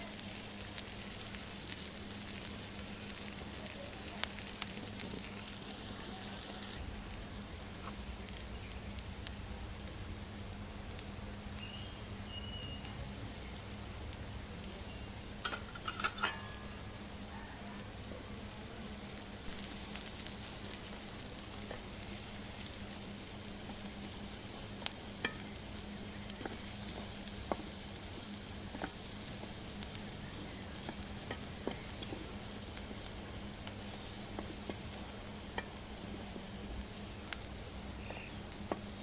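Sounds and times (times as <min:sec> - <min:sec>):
onions sizzling in a pan: 0:00.0 - 0:39.0
wooden spatula stirring: 0:23.6 - 0:39.0.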